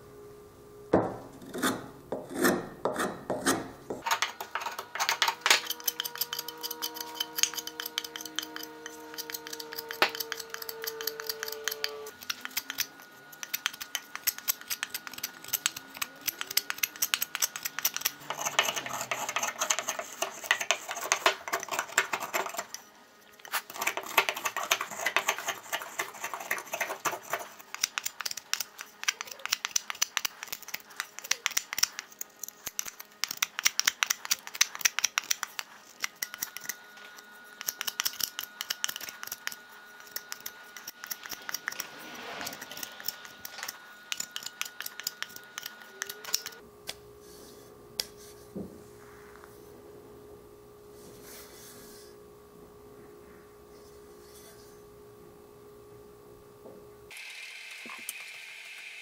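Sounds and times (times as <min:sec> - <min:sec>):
knife scraping wood: 0:01.4 - 0:46.6.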